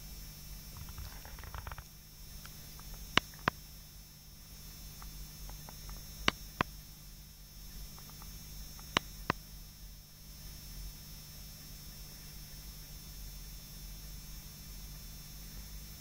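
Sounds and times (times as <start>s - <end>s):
low hum of filter pump: 0.0s - 16.0s
faint crackling: 0.8s - 3.5s
sharp clicks: 8.0s - 9.4s.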